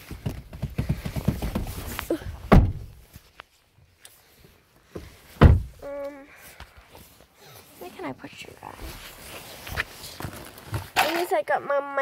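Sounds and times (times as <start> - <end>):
rustling and small knocks: 0.0 - 5.8, 7.9 - 11.4
car door shutting with a thud: 2.5 - 2.9, 5.4 - 5.7.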